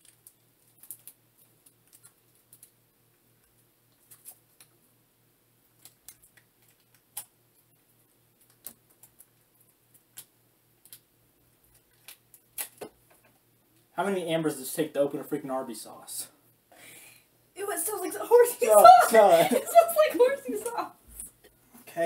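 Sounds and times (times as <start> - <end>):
sauce packets crinkling and tearing: 0.0 - 2.8.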